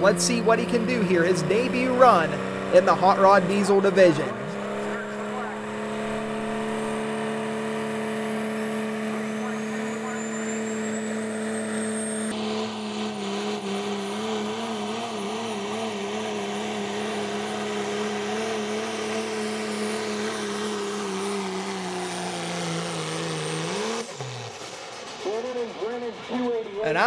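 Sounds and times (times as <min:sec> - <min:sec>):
diesel truck engine at full throttle: 0:00.0 - 0:27.0
high turbo whine: 0:00.0 - 0:27.0.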